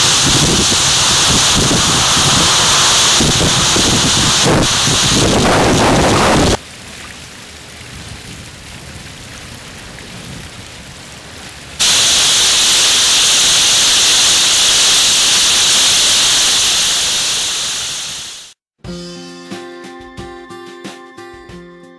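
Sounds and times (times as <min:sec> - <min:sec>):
water splashing into a pool: 0:00.0 - 0:15.2.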